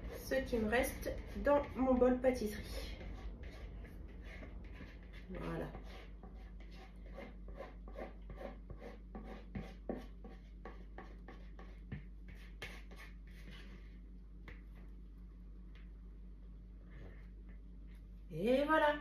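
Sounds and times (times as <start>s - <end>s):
spatula scraping mixing bowl: 0.0s - 13.9s.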